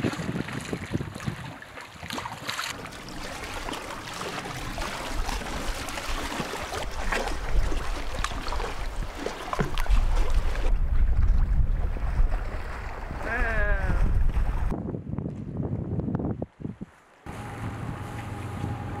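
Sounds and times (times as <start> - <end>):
wind rumble on microphone: 0.0 - 1.7, 4.5 - 19.0
waves lapping against rocks: 0.0 - 14.7.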